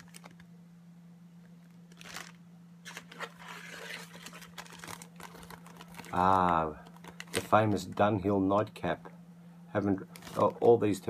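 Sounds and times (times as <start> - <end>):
plastic bag crinkling: 0.0 - 0.4, 1.6 - 8.0, 10.0 - 10.9.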